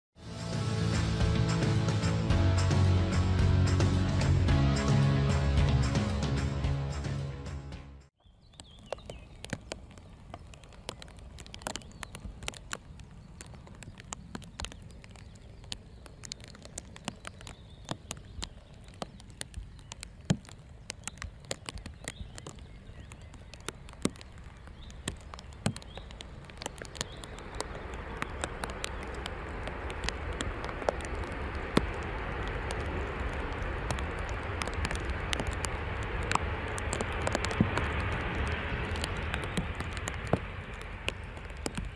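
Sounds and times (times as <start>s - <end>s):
rain pattering: 0.2s - 7.0s, 8.3s - 41.9s
jet engines and tyre spray: 8.6s - 41.9s
low rumble: 27.3s - 41.9s.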